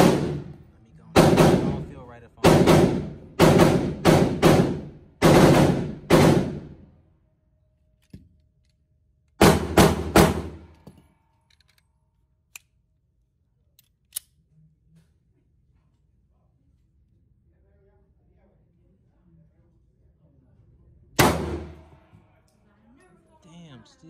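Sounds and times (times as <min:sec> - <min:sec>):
handgun shots echoing: 0:21.2 - 0:22.0.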